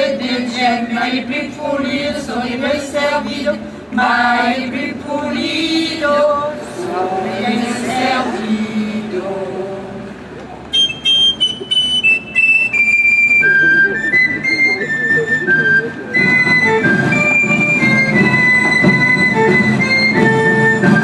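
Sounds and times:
high pipe melody: 10.7s - 21.0s
lower musical accompaniment: 10.8s - 21.0s.

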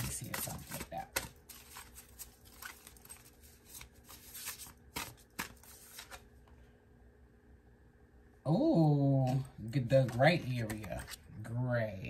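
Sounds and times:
cards being shuffled by hand: 0.0s - 6.5s.

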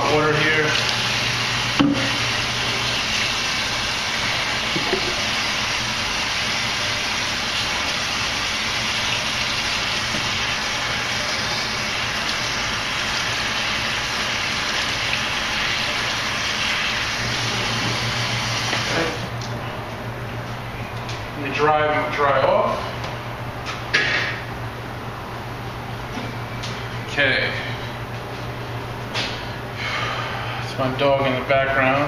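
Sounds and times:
faucet running water: 0.0s - 19.4s.

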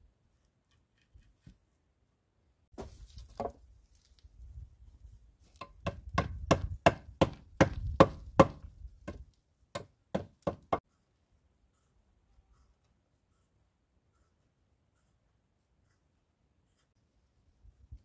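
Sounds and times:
hatchet chopping wood: 5.6s - 10.8s.

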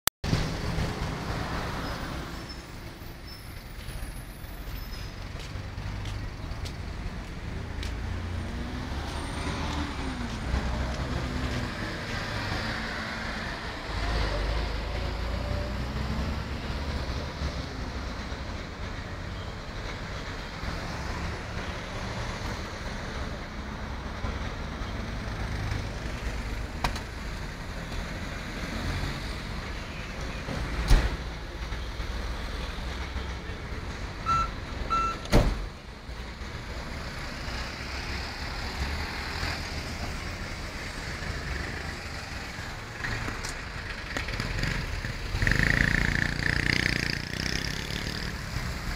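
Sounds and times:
road traffic rumble: 0.2s - 48.9s
vehicles passing close by: 0.2s - 48.9s.

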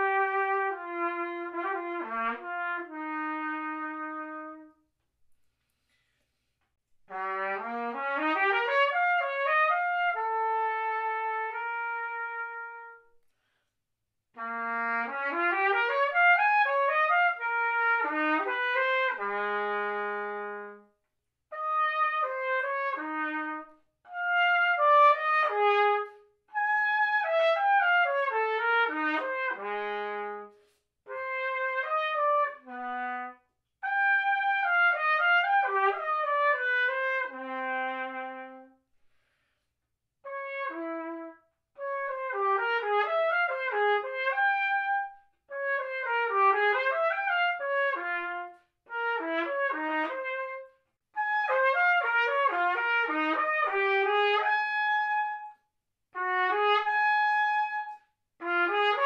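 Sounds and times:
solo trumpet playing: 0.0s - 4.9s, 7.1s - 13.2s, 14.4s - 20.9s, 21.5s - 38.8s, 40.2s - 59.0s.

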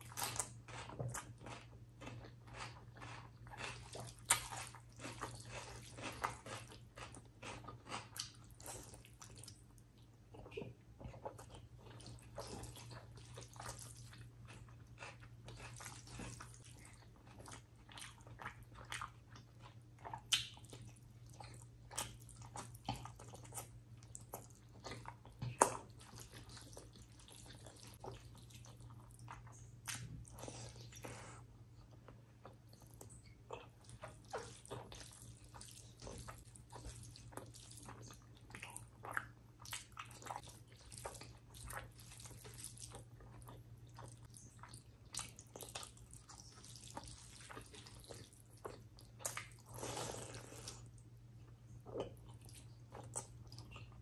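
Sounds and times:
wet chewing and mouth smacks: 0.0s - 31.2s, 31.8s - 54.0s
low steady hum: 0.0s - 54.0s.

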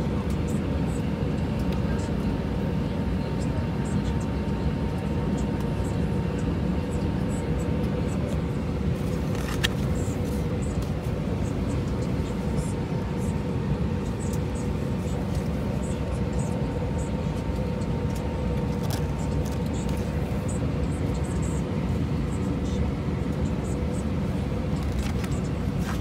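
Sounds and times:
airplane cabin drone: 0.0s - 26.0s
faint steady hum: 0.0s - 26.0s
magazine pages rustling: 9.0s - 10.9s, 24.8s - 26.0s.

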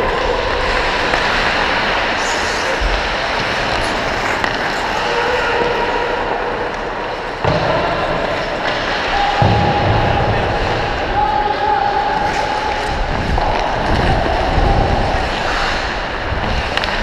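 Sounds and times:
skate blades carving ice: 0.0s - 9.9s, 12.0s - 17.0s
wind on microphone: 12.8s - 17.0s.

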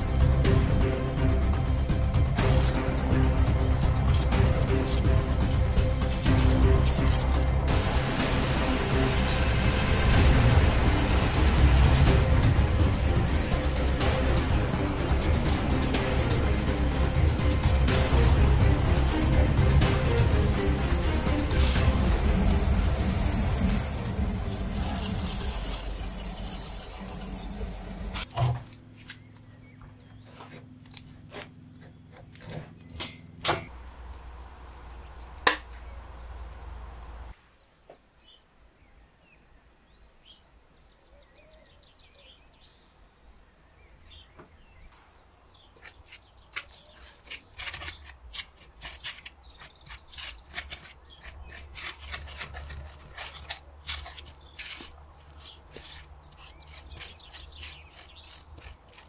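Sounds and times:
low hum: 0.0s - 37.4s
loud dense sound: 0.3s - 25.0s
stick scraping glue paste: 23.4s - 28.2s, 45.8s - 59.0s.

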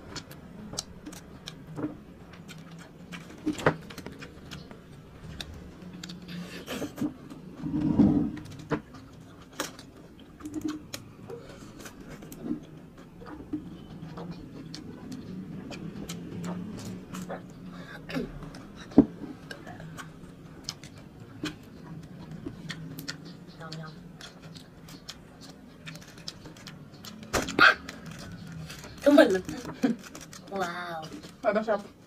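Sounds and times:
chewing: 0.0s - 31.4s.

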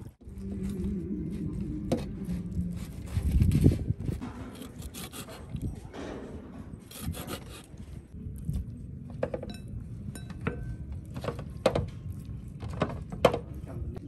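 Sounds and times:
scraping on a hard surface: 0.5s - 8.2s.

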